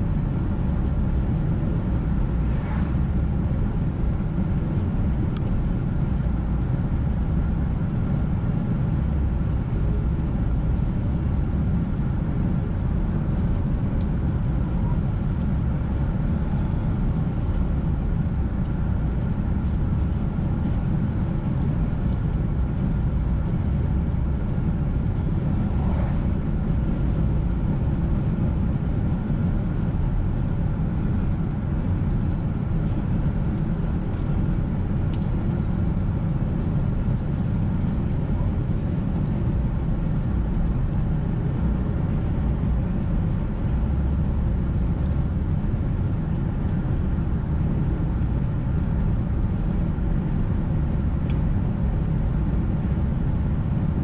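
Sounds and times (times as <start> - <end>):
car driving on wet road: 25.3 - 27.8.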